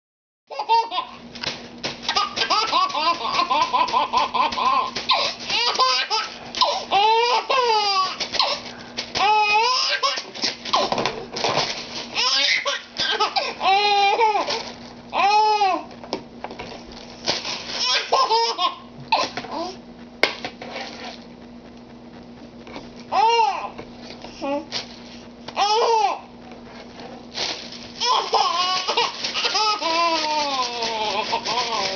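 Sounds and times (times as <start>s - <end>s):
baby laughing: 0.5s - 1.2s, 2.1s - 8.6s, 9.2s - 10.9s, 12.2s - 14.6s, 17.8s - 19.8s, 25.6s - 26.3s, 28.0s - 31.9s.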